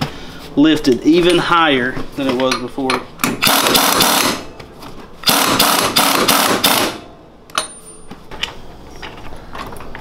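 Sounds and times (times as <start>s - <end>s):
pneumatic impact wrench hammering: 3.2s - 4.5s, 5.2s - 7.9s.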